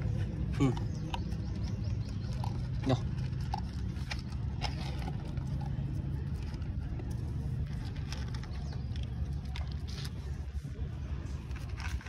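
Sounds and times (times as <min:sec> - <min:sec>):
dogs crunching dry kibble: 0:00.0 - 0:12.0
steady low rumble: 0:00.0 - 0:12.0.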